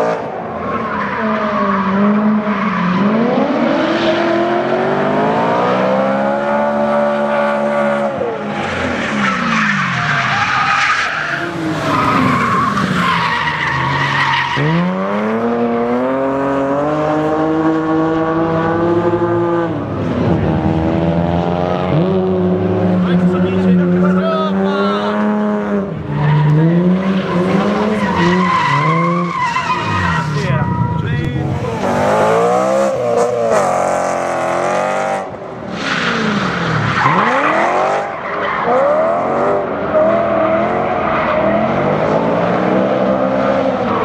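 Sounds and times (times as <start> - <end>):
car engine revving: 0.0 - 10.7, 11.3 - 44.0
tyres squealing and skidding: 0.4 - 4.6, 6.7 - 15.4, 23.1 - 44.0.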